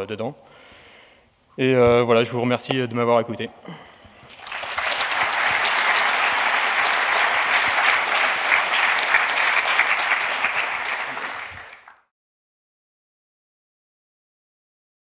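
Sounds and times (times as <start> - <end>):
audience applauding: 4.2 - 12.1.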